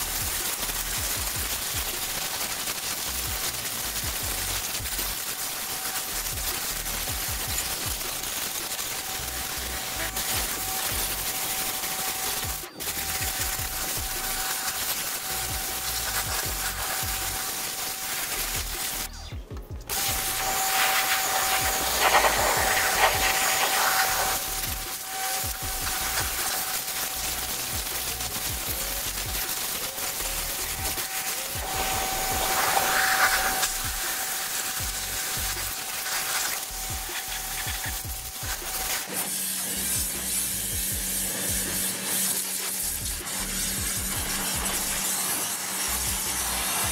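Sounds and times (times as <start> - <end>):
pressure washer jet hissing: 0.0 - 19.2, 19.9 - 46.9
pump whine: 3.0 - 46.9
steady motor whine: 18.4 - 26.6, 30.3 - 36.0.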